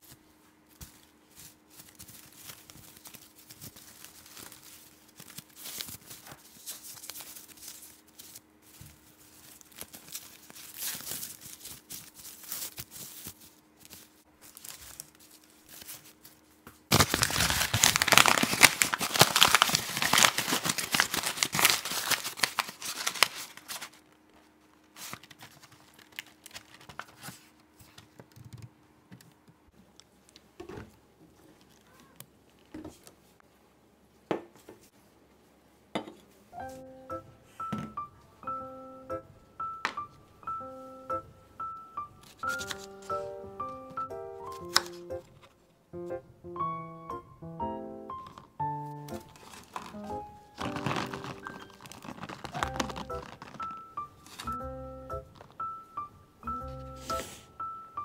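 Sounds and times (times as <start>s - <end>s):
packaging crinkling: 0.8s - 27.5s, 42.2s - 43.8s, 44.4s - 45.6s, 48.1s - 55.8s.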